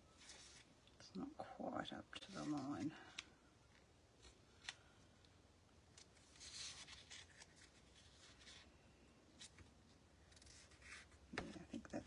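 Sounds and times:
paper rustling: 0:06.0 - 0:08.7.

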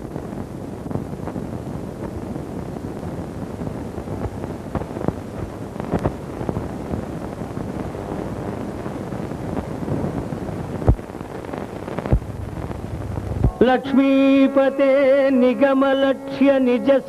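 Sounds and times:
clicks and pops: 0:10.8 - 0:11.1.

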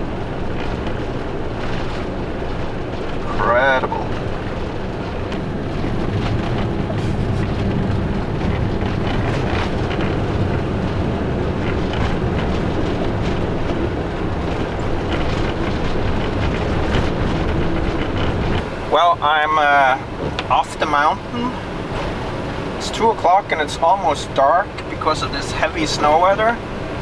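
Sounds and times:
van engine and tyre drone: 0:00.0 - 0:27.0
faint clicks and knocks: 0:11.6 - 0:18.7.

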